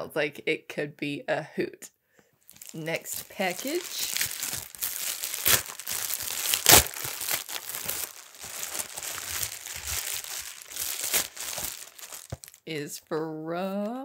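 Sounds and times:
packaging crinkling and rustling: 2.5s - 12.6s
packaging ripping: 2.5s - 12.6s.

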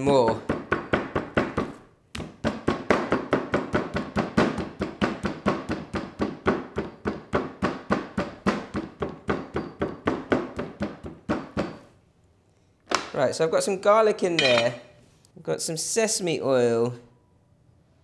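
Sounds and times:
cleaver chopping meat on wooden board: 0.3s - 11.8s.

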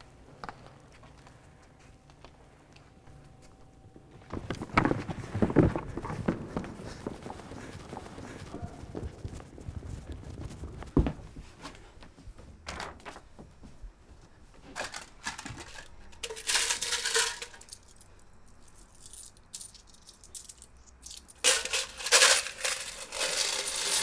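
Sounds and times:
coins clinking and jingling: 14.8s - 24.0s.

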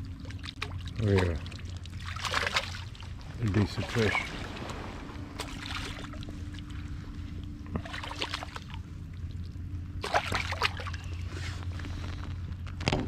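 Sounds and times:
fish splashing in water: 0.0s - 4.7s, 5.3s - 6.9s, 7.7s - 11.3s
low steady hum: 0.0s - 13.0s.

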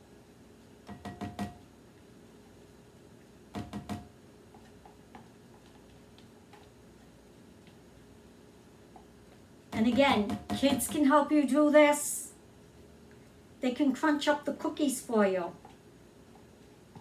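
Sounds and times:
spatula tapping containers: 0.9s - 1.6s, 3.6s - 6.8s, 9.7s - 11.2s.

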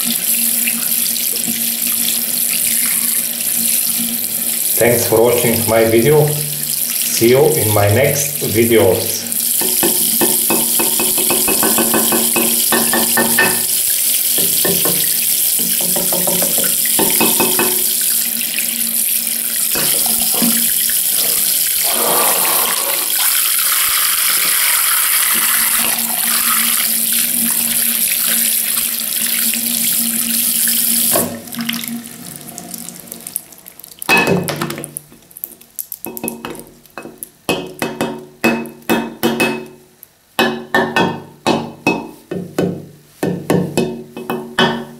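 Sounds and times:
tap water running into sink: 0.0s - 35.3s.

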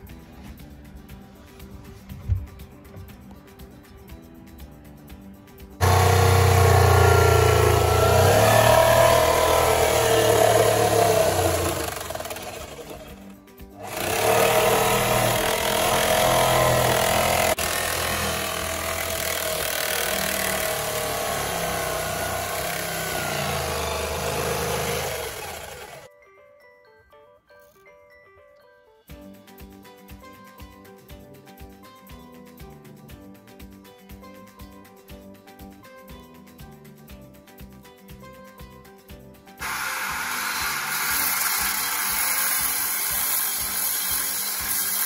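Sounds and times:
background music: 0.0s - 45.0s
power tool running: 5.8s - 26.1s, 39.6s - 45.0s.

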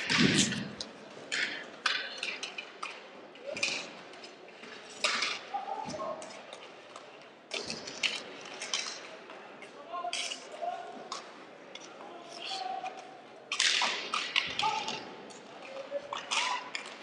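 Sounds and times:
hockey sticks hitting ball: 0.0s - 4.0s, 4.6s - 9.1s, 12.5s - 17.0s.

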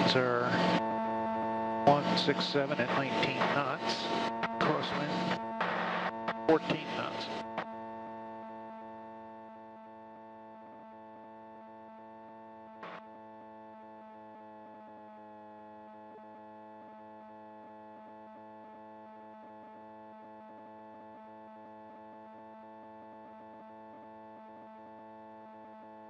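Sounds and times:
aircraft engine and propeller drone: 0.0s - 7.8s.

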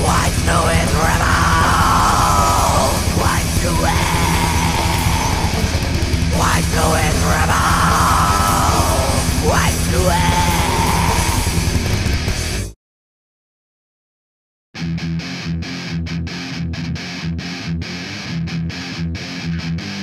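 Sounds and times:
harsh yelled vocals: 0.0s - 12.2s
bass guitar: 0.0s - 12.8s, 14.8s - 20.0s
distorted guitars: 0.0s - 12.8s, 14.8s - 20.0s
drums: 0.0s - 12.8s.

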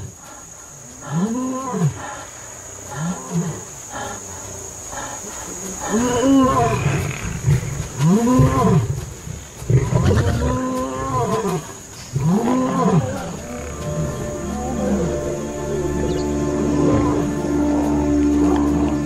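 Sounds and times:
lions roaring: 9.7s - 19.0s
music: 13.4s - 19.0s.

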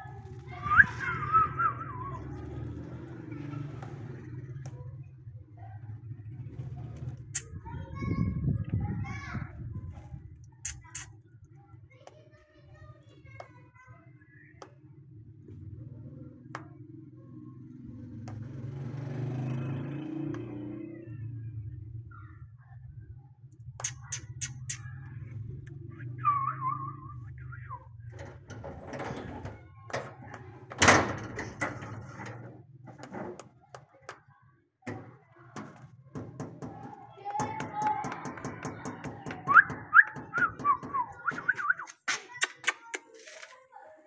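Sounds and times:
parrot beak clicking on brick: 10.6s - 11.2s, 23.8s - 24.9s, 39.4s - 43.1s.

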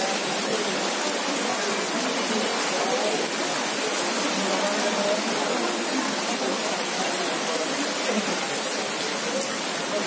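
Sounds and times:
rain falling: 0.0s - 10.0s.

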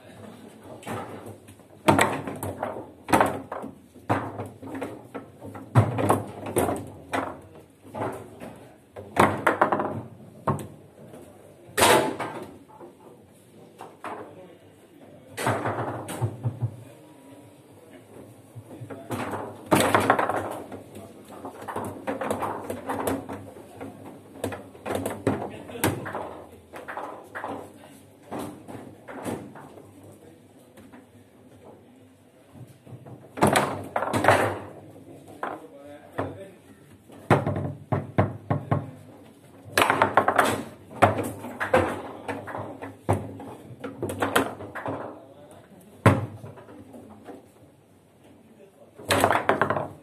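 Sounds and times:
foosball figures clacking ball: 0.5s - 14.4s, 15.3s - 16.9s, 18.0s - 47.8s, 48.9s - 50.0s
table football ball knocking: 49.1s - 50.0s.

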